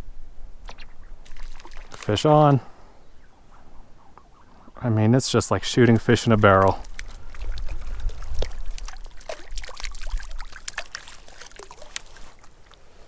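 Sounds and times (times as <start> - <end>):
fish splashing in water: 0.7 - 2.2, 6.1 - 12.8.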